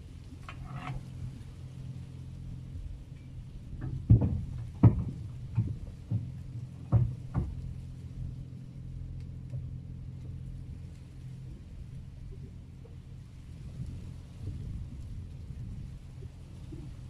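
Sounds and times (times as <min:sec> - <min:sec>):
excavator diesel engine running: 0:00.0 - 0:17.0
heavy knocks on steel panels: 0:03.8 - 0:07.8.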